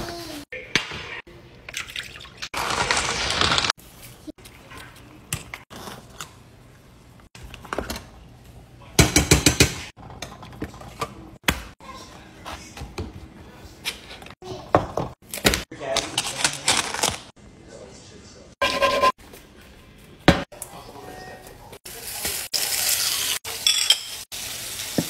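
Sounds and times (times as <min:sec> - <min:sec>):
utensils clattering against dishes: 0:23.4 - 0:24.3.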